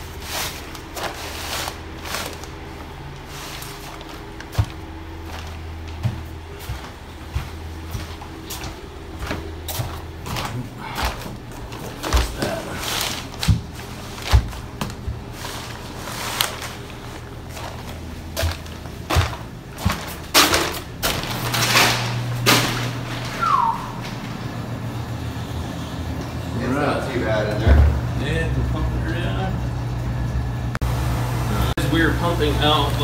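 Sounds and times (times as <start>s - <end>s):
plastic rustling and crinkling: 0.0s - 6.8s, 7.9s - 23.5s
footsteps on plastic sheeting: 0.0s - 23.4s
steady low hum: 0.0s - 33.0s.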